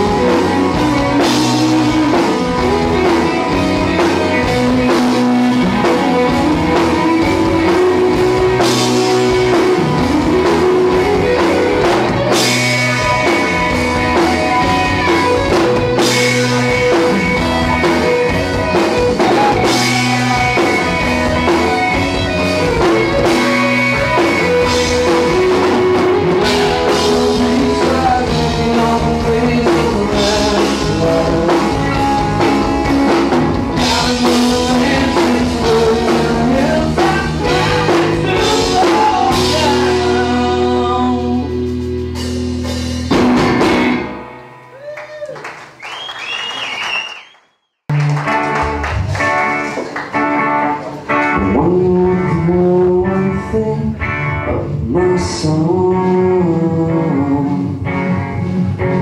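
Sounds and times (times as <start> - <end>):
rock band playing: 0.0 - 47.1, 47.9 - 59.0.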